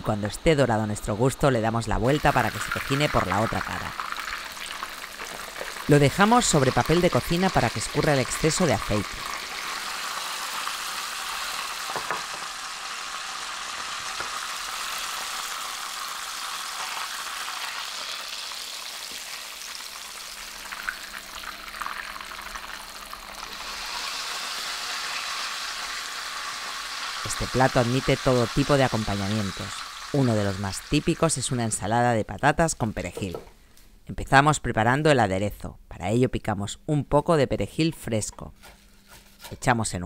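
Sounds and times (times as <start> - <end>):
breaded meat frying in oil: 2.0 - 33.0
oil crackling: 2.1 - 31.6.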